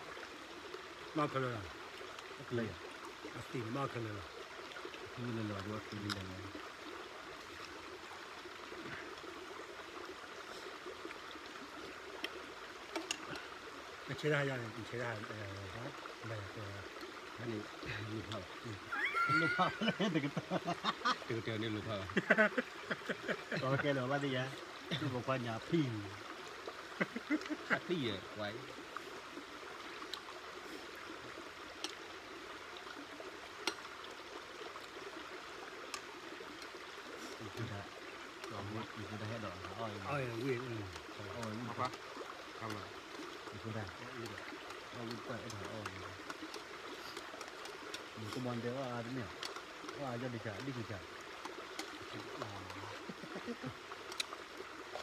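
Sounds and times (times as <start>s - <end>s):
flowing water rushing: 0.0s - 55.0s.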